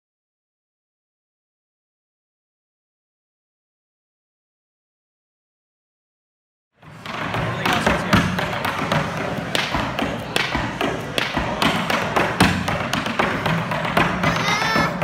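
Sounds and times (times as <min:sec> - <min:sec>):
hard shoes tapping on wooden stage: 0:07.0 - 0:15.0.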